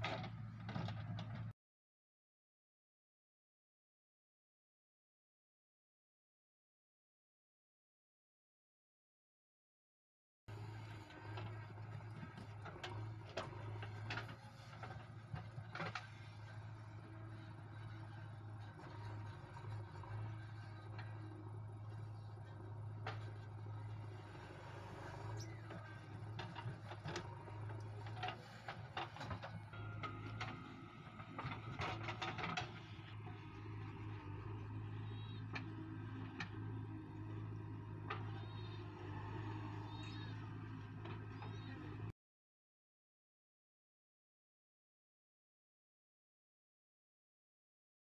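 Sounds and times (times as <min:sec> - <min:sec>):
diesel engines humming: 0:10.5 - 0:42.1.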